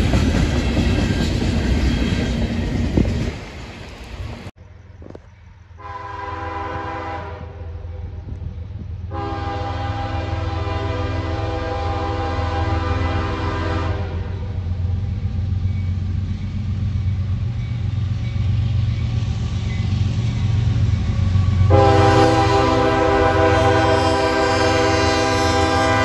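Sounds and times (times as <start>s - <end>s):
diesel train rumble: 0.0s - 26.0s
train air horn blasts: 5.8s - 8.1s, 9.1s - 14.6s, 21.6s - 26.0s.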